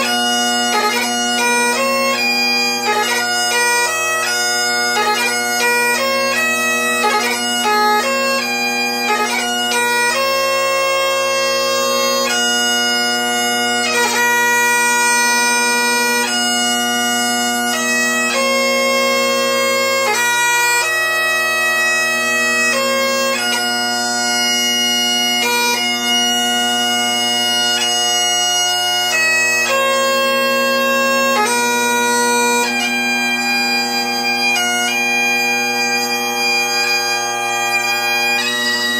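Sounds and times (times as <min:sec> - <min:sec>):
bagpipe chanter slow melody: 0:00.0 - 0:38.9
bagpipe drones: 0:00.0 - 0:38.9.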